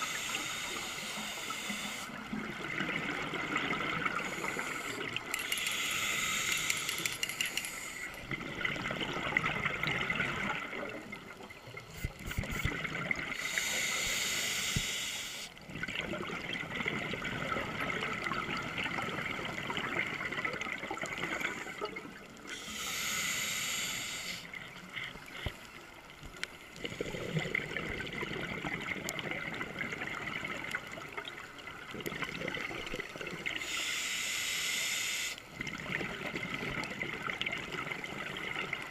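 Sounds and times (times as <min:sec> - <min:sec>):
regulator hiss on inhale: 0:00.0 - 0:02.2, 0:04.1 - 0:08.2, 0:13.3 - 0:15.6, 0:21.2 - 0:25.7, 0:33.6 - 0:35.6
exhale bubbling underwater: 0:02.2 - 0:05.2, 0:15.7 - 0:22.2, 0:26.8 - 0:33.6.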